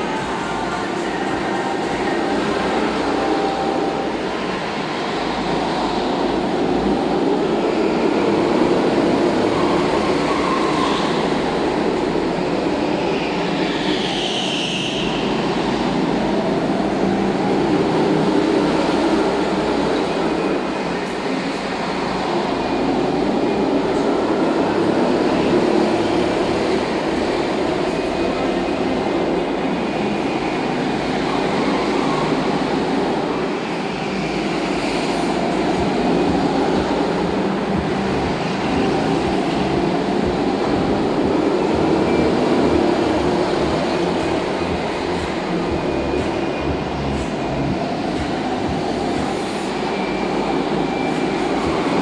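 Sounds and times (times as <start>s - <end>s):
go-kart engines droning: 0.0s - 52.0s
high tire squeal: 7.6s - 24.0s.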